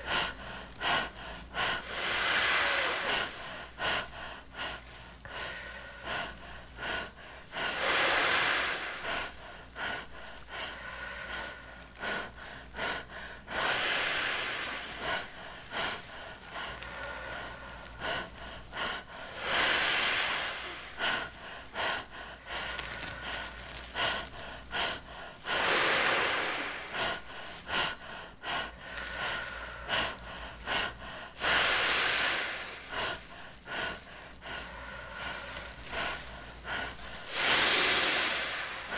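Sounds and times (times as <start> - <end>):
man blowing into plastic bag: 35.0 - 38.9.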